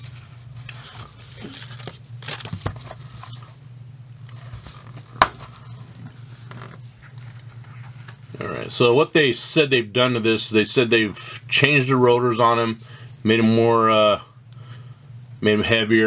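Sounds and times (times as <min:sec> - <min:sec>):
cardboard scraping and rustling: 0:00.0 - 0:03.6, 0:04.3 - 0:08.0.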